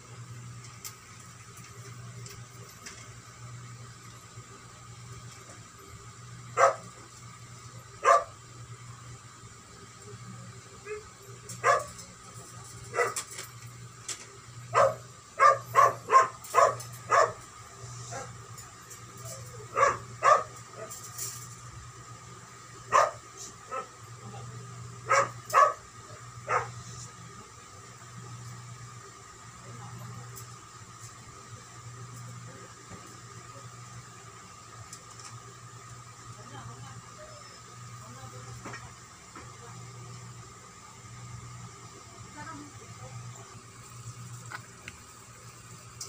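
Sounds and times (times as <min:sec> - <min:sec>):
faint steady hum: 0:00.0 - 0:46.0
dog barking: 0:06.6 - 0:06.9, 0:08.0 - 0:08.4, 0:11.6 - 0:12.0, 0:12.9 - 0:13.2, 0:14.7 - 0:17.4, 0:19.7 - 0:20.9, 0:22.9 - 0:23.9, 0:25.1 - 0:25.8, 0:26.5 - 0:26.8.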